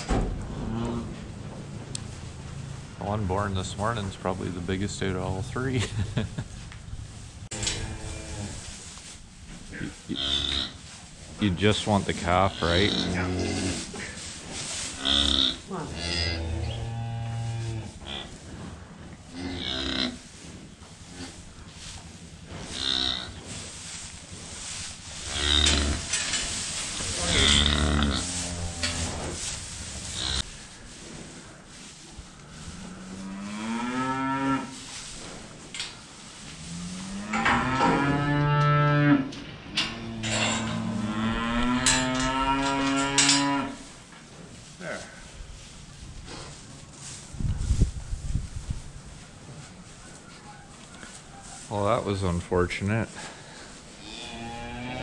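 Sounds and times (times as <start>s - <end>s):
cattle mooing: 12.4s - 13.9s, 15.0s - 18.3s, 25.2s - 26.2s, 27.0s - 29.4s, 36.6s - 43.8s, 54.0s - 55.0s.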